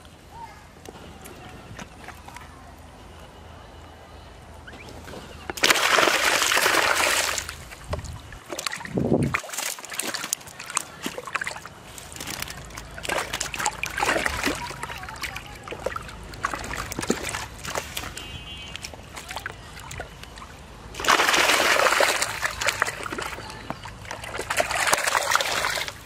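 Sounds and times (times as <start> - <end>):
fish splashing in a bucket: 5.5 - 26.0
wet clicks and rustles of net: 5.5 - 26.0.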